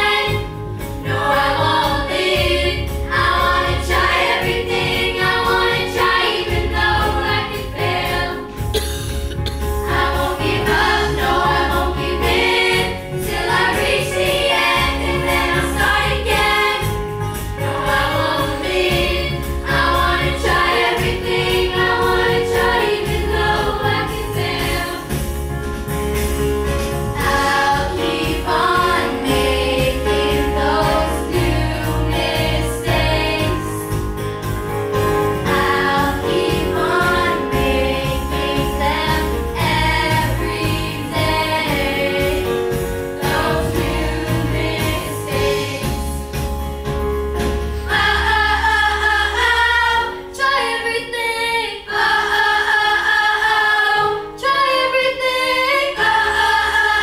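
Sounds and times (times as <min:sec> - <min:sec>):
children singing: 0:00.0 - 0:08.5, 0:09.9 - 0:17.0, 0:17.6 - 0:25.2, 0:27.2 - 0:33.8, 0:35.5 - 0:42.6, 0:43.2 - 0:46.2, 0:47.9 - 0:57.0
live band playing: 0:08.0 - 0:13.8, 0:14.4 - 0:48.2.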